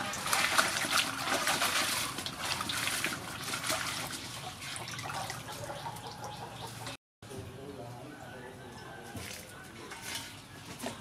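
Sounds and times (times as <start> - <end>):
water splashing in a metal basin: 0.0 - 6.4.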